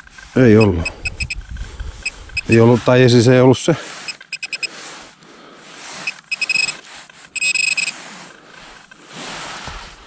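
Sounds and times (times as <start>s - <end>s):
metal detector pinpointer beeping: 0.4s - 1.4s, 2.0s - 2.7s, 4.0s - 4.7s, 6.0s - 8.0s
pinpointer steady tone: 0.4s - 1.4s, 4.1s - 4.7s, 6.0s - 6.8s, 7.4s - 7.9s.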